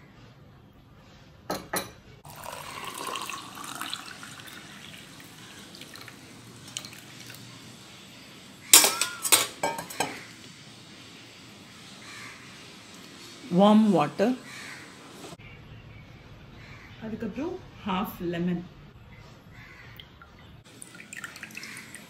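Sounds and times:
water poured into a glass: 2.2 - 7.4, 20.7 - 22.0
spoon clinking glassware: 8.8 - 10.2.

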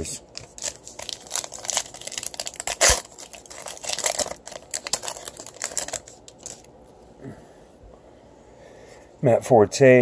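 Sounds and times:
wrapper tearing and crinkling: 0.3 - 6.7
sharp wrapper crack: 0.4 - 6.7.

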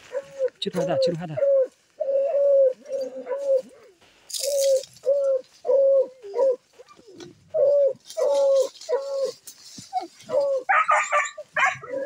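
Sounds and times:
dog barking: 10.7 - 12.0.

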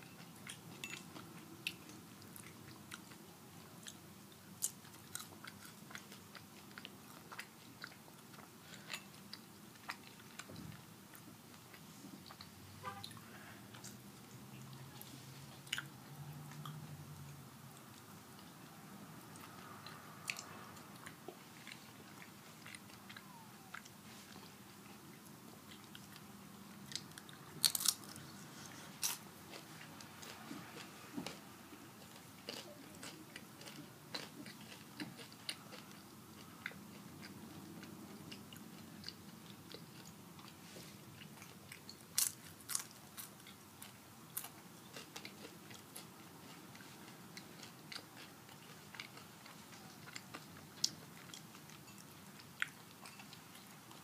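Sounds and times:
chewing crunchy chips: 0.2 - 12.5, 25.6 - 54.0.

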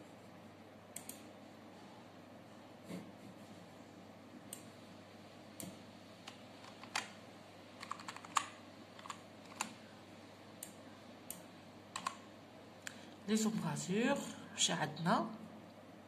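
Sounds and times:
computer keyboard key clicks: 7.8 - 9.7, 12.0 - 12.2.

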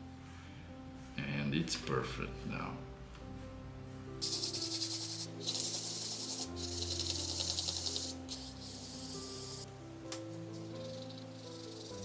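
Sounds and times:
soft background music: 0.0 - 12.0
fingertips rasping on canvas: 4.2 - 9.6, 10.8 - 12.0.

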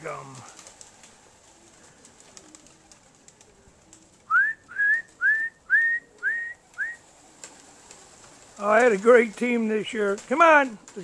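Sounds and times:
person whistling short rising notes: 4.3 - 7.0.

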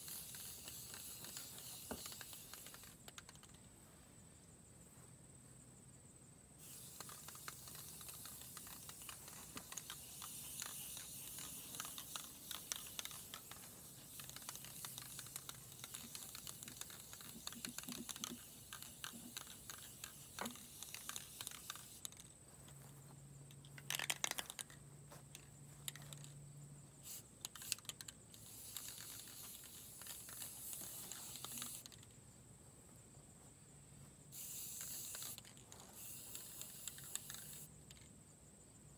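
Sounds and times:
spray paint can hissing: 0.0 - 3.6, 6.6 - 22.3, 23.8 - 26.3, 27.0 - 32.0, 34.3 - 38.0.

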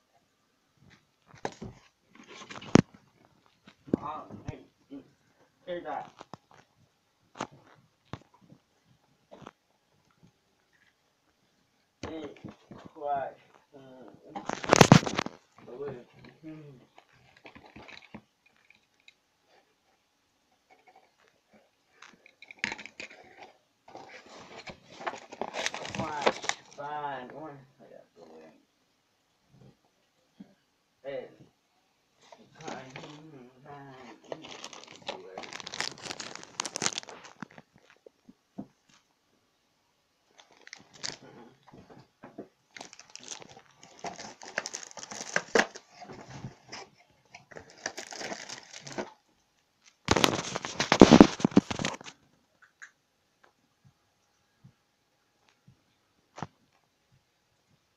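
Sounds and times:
plastic bag crinkling: 14.4 - 15.6, 34.1 - 38.0, 40.3 - 41.3, 42.7 - 49.2, 49.8 - 52.1.

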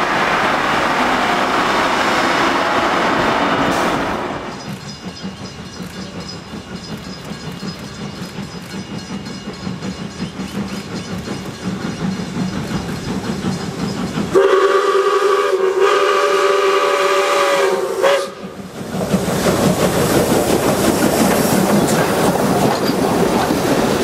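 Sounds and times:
steam whistle: 0.0 - 4.6, 14.3 - 18.6
train carriages clattering on rails: 0.0 - 15.9, 18.0 - 24.0
steam locomotive chuffing: 0.0 - 24.0.

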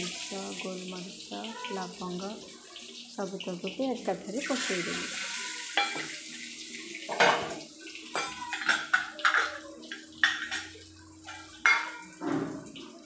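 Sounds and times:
hot oil sizzling and crackling: 0.0 - 13.0
steel pots and utensils clinking: 0.0 - 13.0.

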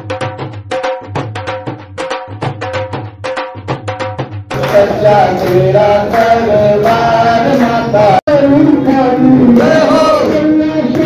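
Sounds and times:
voices singing devotional song: 4.5 - 11.0.

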